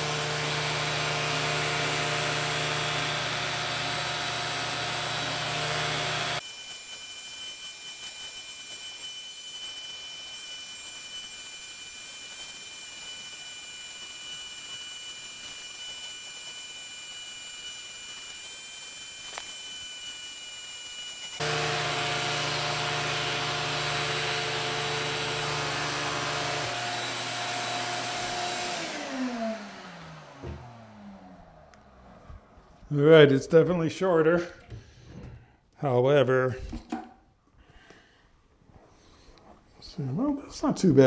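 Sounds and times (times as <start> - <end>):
vacuum cleaner motor whine: 0.0 - 32.7.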